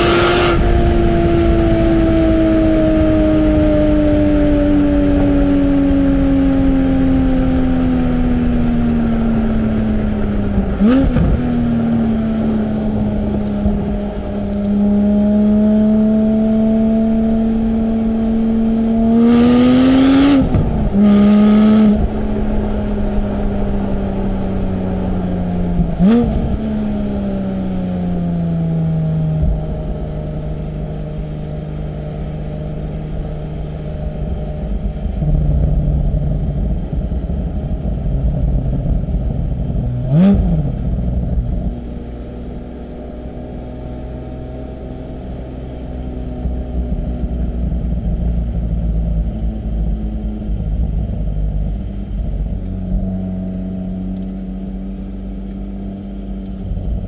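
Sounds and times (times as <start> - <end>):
loud raspy exhaust acceleration: 0.0 - 57.0
sports car engine revving: 0.0 - 57.0.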